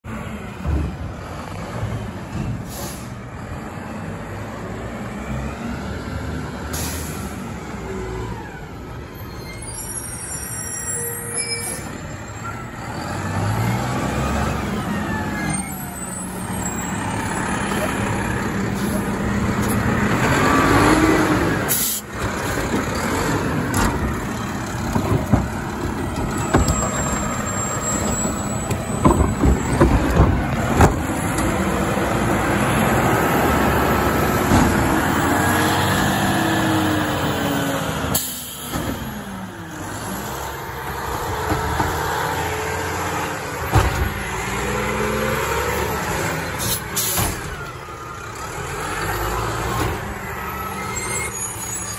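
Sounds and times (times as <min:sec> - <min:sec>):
short air hisses: 0:02.7 - 0:03.2
garbage cart clanking and banging: 0:22.2 - 0:31.6.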